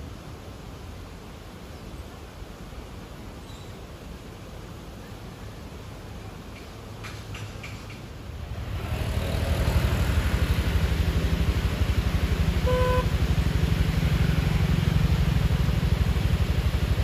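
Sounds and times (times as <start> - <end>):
vehicle engine running: 8.4 - 17.0
short horn toot: 12.6 - 13.1.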